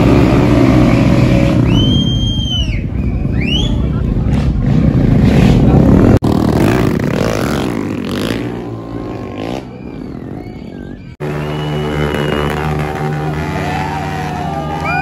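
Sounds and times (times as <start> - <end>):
motorcycles revving: 0.0 - 15.0.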